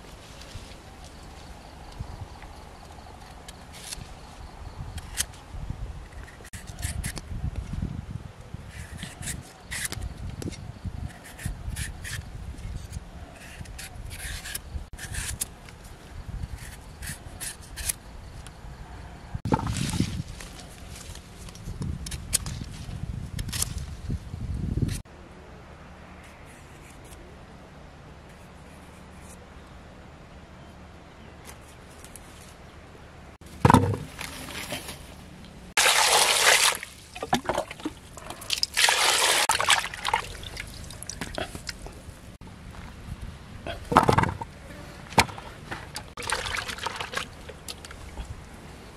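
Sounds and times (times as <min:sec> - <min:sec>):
water splashing: 0:35.8 - 0:41.5, 0:46.2 - 0:48.2.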